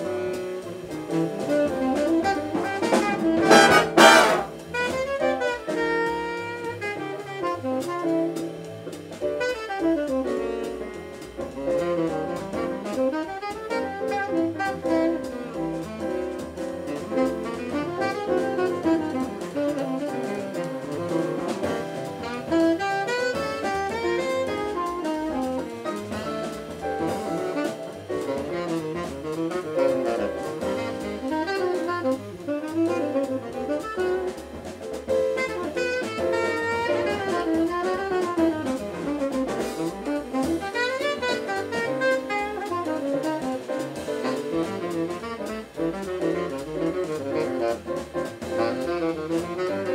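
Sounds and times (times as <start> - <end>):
double bass: 0.0 - 49.9
drums: 0.0 - 49.9
saxophone solo: 0.0 - 49.9.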